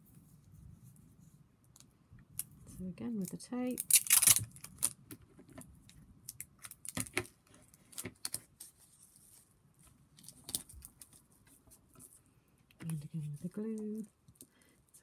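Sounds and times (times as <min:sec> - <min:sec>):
tape clicks and crackles: 0:03.2 - 0:08.7.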